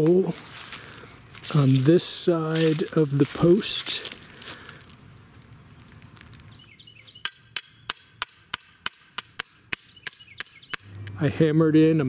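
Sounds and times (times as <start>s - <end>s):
sledgehammer striking metal post: 7.2s - 10.9s.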